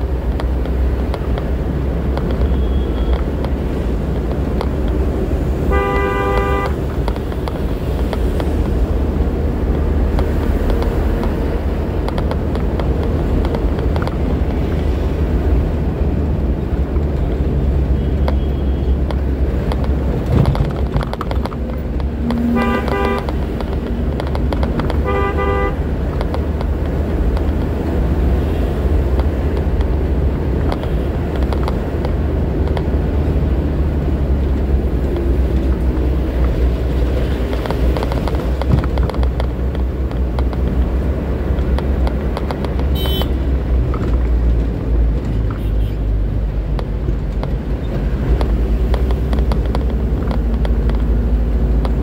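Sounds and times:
engine and road rumble: 0.0s - 52.0s
vehicle horn toots: 2.5s - 3.2s, 5.6s - 6.9s, 22.3s - 23.4s, 25.0s - 25.9s, 42.9s - 43.5s.

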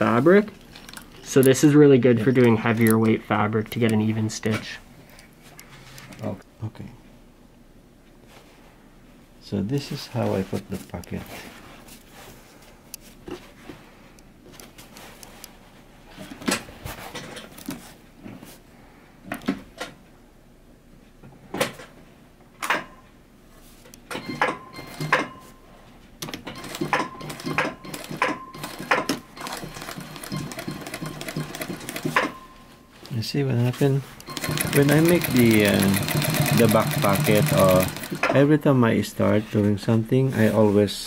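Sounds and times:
sewing machine clicks: 26.3s - 32.3s, 34.2s - 38.3s
sewing machine stitching: 26.5s - 32.4s, 34.2s - 38.4s.

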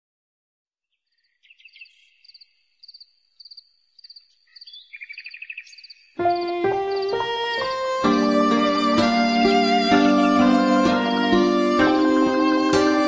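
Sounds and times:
lower chirping: 1.1s - 12.6s
crickets chirping: 1.7s - 7.8s.

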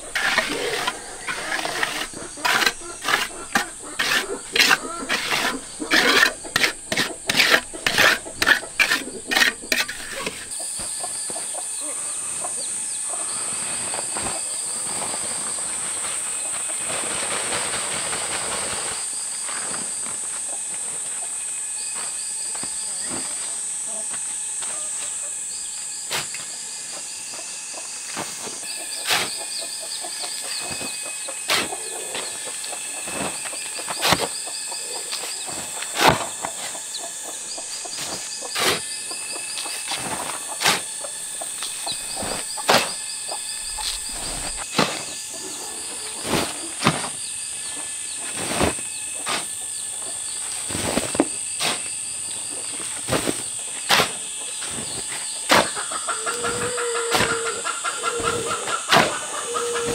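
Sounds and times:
shovel scraping hard ground: 0.0s - 10.6s, 28.2s - 29.6s, 30.5s - 32.4s, 33.0s - 34.5s, 35.1s - 45.2s, 46.1s - 47.2s, 48.3s - 49.6s, 50.6s - 51.9s, 53.0s - 55.8s
insects droning: 0.0s - 59.9s.

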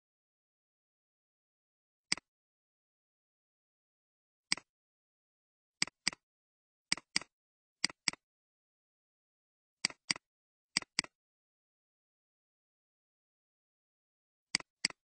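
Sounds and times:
computer mouse clicks: 2.1s - 2.3s, 5.8s - 6.2s, 6.9s - 8.2s, 9.8s - 10.2s, 10.8s - 11.2s, 14.5s - 15.0s.

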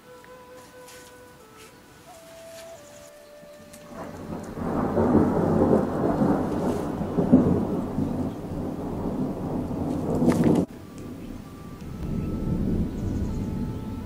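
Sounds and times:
thunder rumbling: 3.8s - 14.0s.

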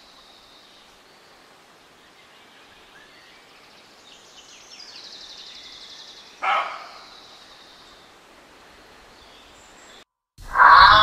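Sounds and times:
faint outdoor ambience: 0.0s - 11.0s
bird trilling: 10.5s - 11.0s
short loud animal call: 10.5s - 11.0s.

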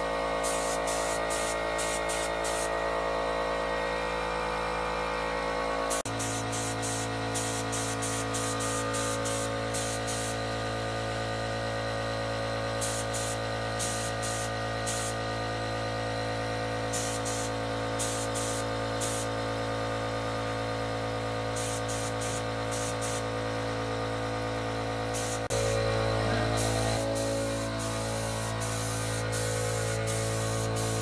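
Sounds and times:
paint spray gun hissing: 0.0s - 2.8s, 5.9s - 11.2s, 12.7s - 15.7s, 16.3s - 19.4s, 21.4s - 23.8s, 25.0s - 31.0s
steady mechanical hum: 0.0s - 31.0s.

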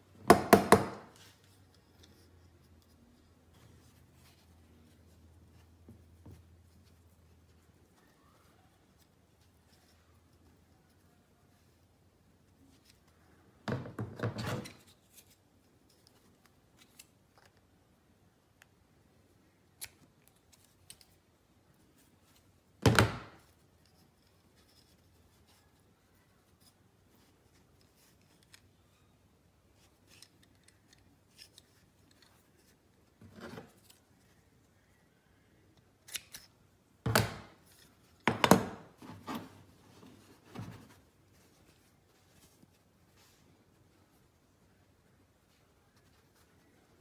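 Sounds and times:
rustles of handling: 1.1s - 13.6s, 38.9s - 47.0s.

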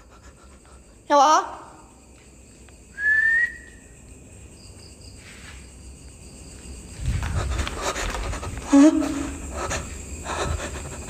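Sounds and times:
faint insect chirping: 0.0s - 11.0s
high whistle-like tone: 2.9s - 3.8s.

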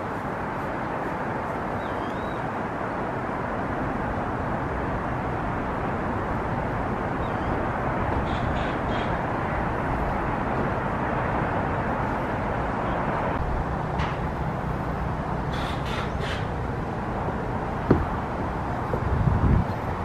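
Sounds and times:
distant city traffic: 0.0s - 20.0s
bird calling: 1.7s - 2.4s, 8.2s - 9.2s, 15.5s - 16.6s.

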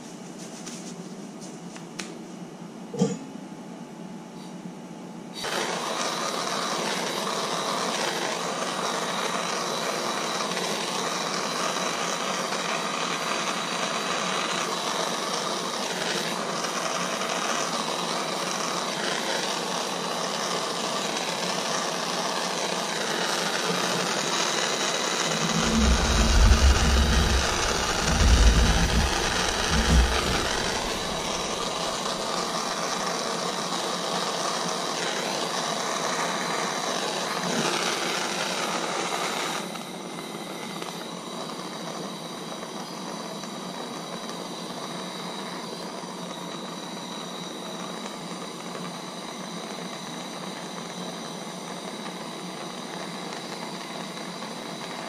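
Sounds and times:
gas torch hissing: 5.3s - 55.0s
low rumbling bumps: 25.2s - 32.4s.

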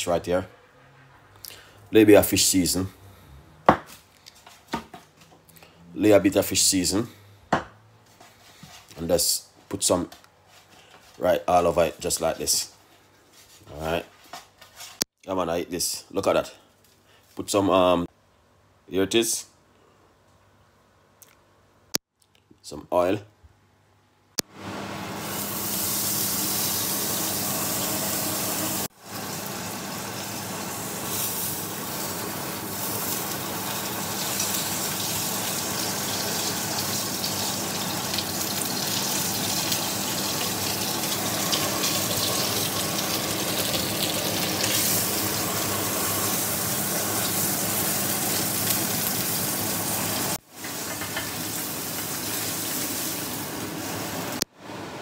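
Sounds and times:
fish sizzling in hot oil: 25.2s - 54.4s.

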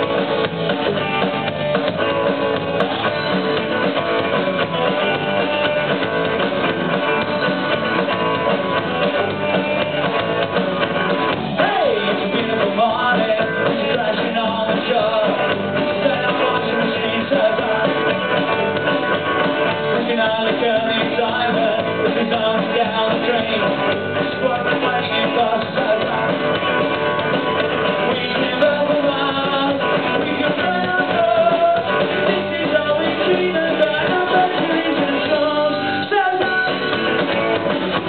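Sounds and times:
live rock band playing: 0.0s - 38.0s
person singing: 11.5s - 18.6s, 19.9s - 26.5s, 28.0s - 37.2s.

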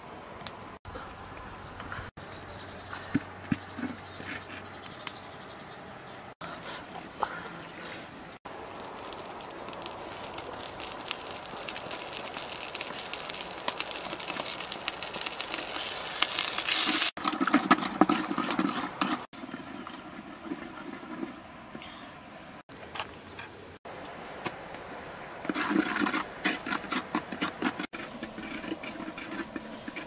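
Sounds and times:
pot boiling and bubbling: 6.5s - 22.1s, 24.9s - 30.0s
wood fire crackling: 8.4s - 17.4s.

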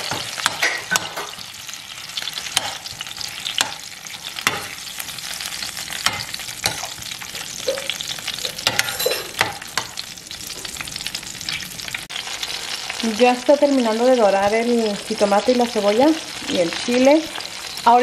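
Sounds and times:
metal spoon scraping a pan: 0.0s - 10.0s
vegetables sizzling in oil: 0.0s - 18.0s.

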